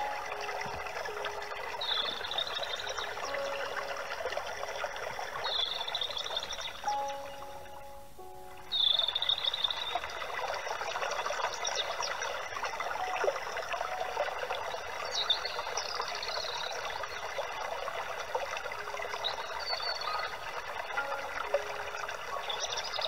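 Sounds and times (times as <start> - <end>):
birds whistling and chirping: 0.0 - 4.2, 5.4 - 8.0, 8.6 - 10.0, 19.2 - 20.3, 21.0 - 23.0
water trickling: 0.0 - 23.0.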